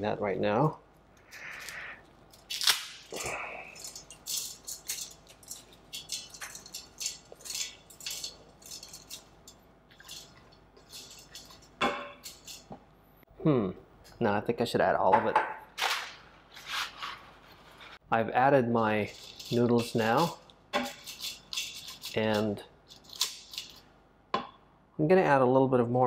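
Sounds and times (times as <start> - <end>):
dry spaghetti snapping: 1.2 - 5.6.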